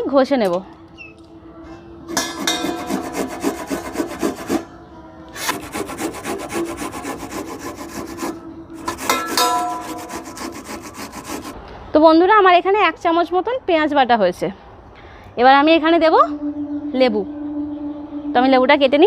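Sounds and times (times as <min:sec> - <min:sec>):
steel pan metallic ring: 0:01.7 - 0:04.7, 0:08.1 - 0:11.5
onion grated on steel grater: 0:02.4 - 0:04.7, 0:05.4 - 0:11.6.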